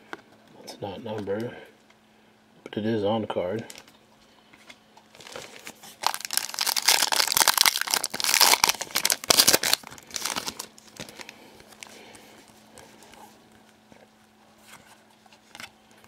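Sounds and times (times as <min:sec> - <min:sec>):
foil wrapper crinkling: 0:05.1 - 0:13.1.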